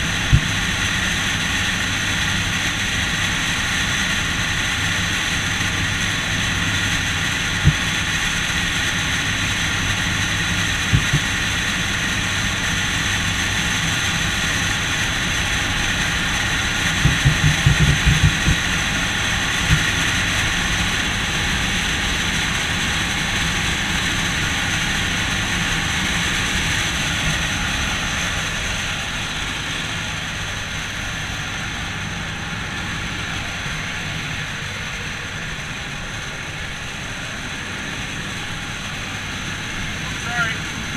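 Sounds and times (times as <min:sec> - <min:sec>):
plane engines running: 0:00.0 - 0:40.9
knocks and bumps: 0:00.3 - 0:00.6, 0:10.9 - 0:11.3, 0:17.0 - 0:18.7.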